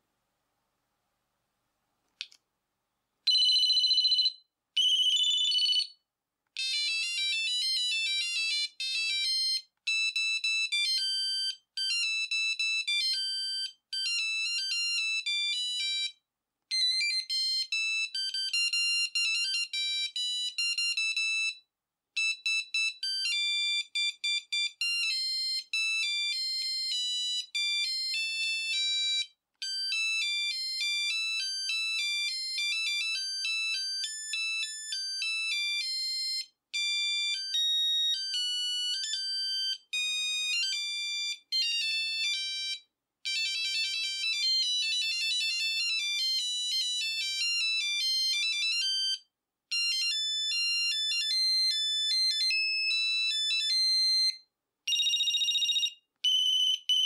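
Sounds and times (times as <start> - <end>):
beeping ringtone melodies: 3.3 - 5.9, 36.8 - 57.0
two-tone trill phone ring: 3.3 - 6.0, 22.2 - 57.0.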